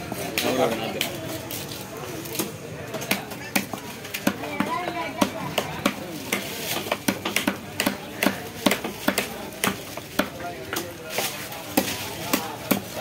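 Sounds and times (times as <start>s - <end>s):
knife chopping on wooden block: 3.0s - 10.8s.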